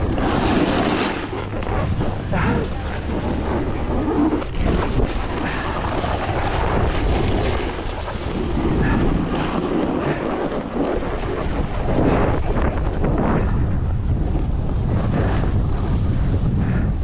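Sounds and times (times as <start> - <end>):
snowboard scraping on snow: 0.0 - 16.6
wind buffeting microphone: 0.0 - 17.0.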